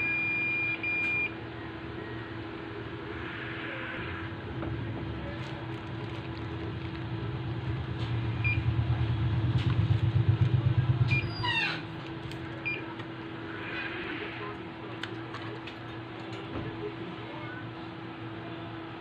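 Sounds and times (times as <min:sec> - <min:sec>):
multimeter beeps: 0:00.0 - 0:01.4, 0:08.4 - 0:08.7, 0:12.6 - 0:12.9
low rumbling hum: 0:00.0 - 0:18.3
steady hum: 0:00.0 - 0:19.0.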